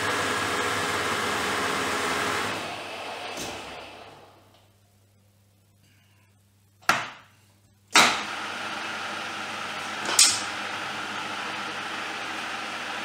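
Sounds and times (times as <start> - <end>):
milling machine motor running: 8.2 - 13.0.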